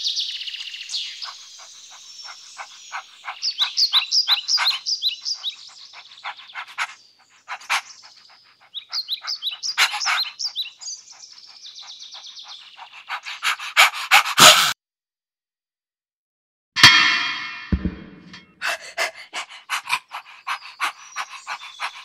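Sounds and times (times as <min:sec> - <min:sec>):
dog panting: 0:01.2 - 0:14.8, 0:18.6 - 0:22.0.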